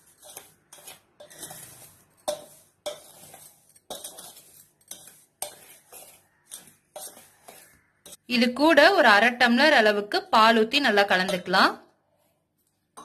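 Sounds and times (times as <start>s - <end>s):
spoon scraping steel bowl: 0.0s - 8.3s, 11.0s - 11.6s.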